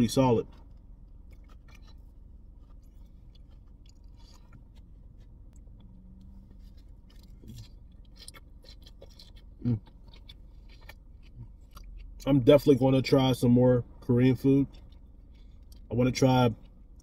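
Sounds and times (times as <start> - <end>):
low steady rumble: 0.0 - 17.0
wet chewing mouth sounds: 0.6 - 12.3.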